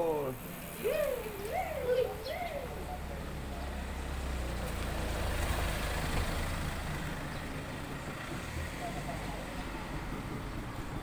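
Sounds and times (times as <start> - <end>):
vehicle engine rumble: 0.0 - 11.0
pigeon cooing: 0.8 - 3.0.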